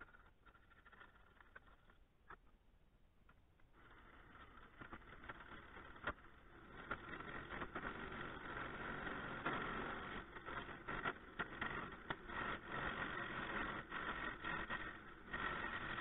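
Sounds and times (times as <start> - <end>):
lathe tool scraping wood: 3.8 - 16.0.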